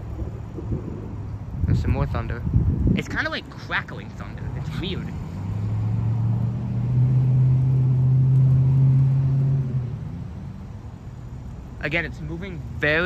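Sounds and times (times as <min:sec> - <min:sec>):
loud low rumble with hum: 0:00.0 - 0:05.1.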